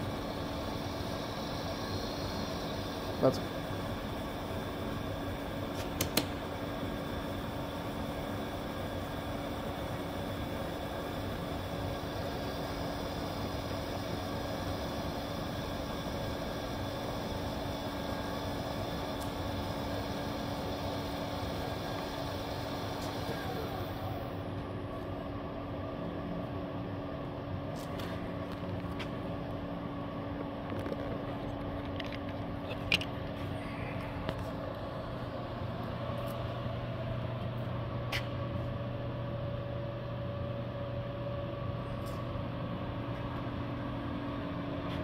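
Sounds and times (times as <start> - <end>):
lathe humming: 0.0 - 25.8.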